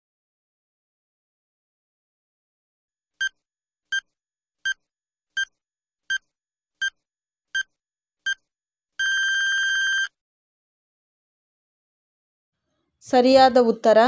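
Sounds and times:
long steady beep: 9.0 - 10.1
short electronic beeps: 9.0 - 10.1.

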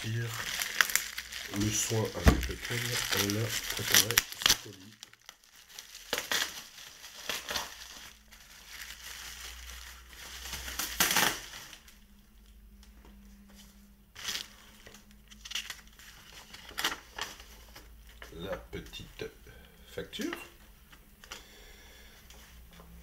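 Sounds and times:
bubble wrap crinkling: 0.0 - 12.6, 14.1 - 19.4.

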